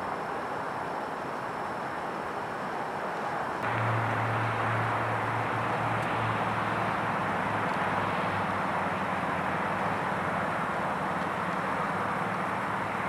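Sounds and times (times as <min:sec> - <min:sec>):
steady rushing noise: 0:00.0 - 0:13.0
low hum: 0:03.6 - 0:13.0.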